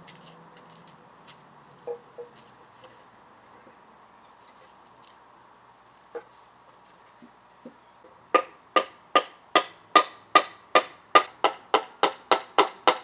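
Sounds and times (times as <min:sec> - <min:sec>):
hammer driving nails into wood: 0:08.4 - 0:13.0.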